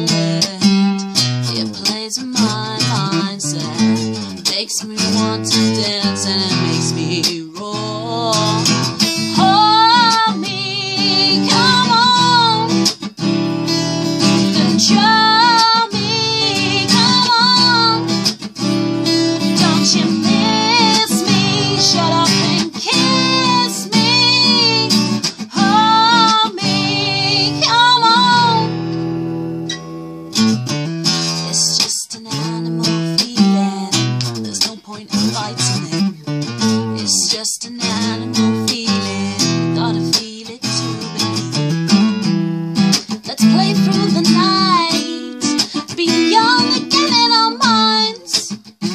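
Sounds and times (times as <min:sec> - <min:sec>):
woman singing: 0:00.0 - 0:29.1, 0:31.0 - 0:41.6, 0:42.9 - 0:48.9
acoustic guitar: 0:00.0 - 0:48.9.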